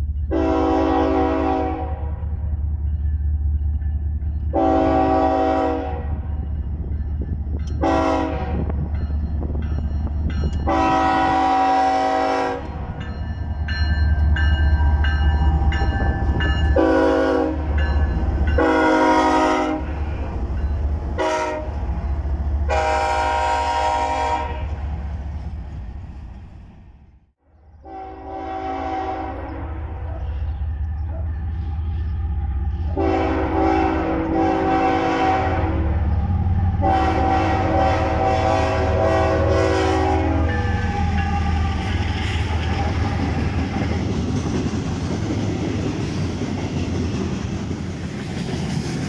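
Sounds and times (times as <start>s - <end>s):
freight train rumbling past: 0.0s - 49.0s
locomotive air horn blasts: 0.3s - 2.3s, 4.5s - 6.3s, 7.8s - 8.8s, 10.6s - 12.9s, 16.7s - 17.8s, 18.6s - 20.1s, 21.2s - 21.9s, 22.7s - 24.9s, 27.7s - 30.4s, 32.7s - 36.0s, 36.7s - 42.0s.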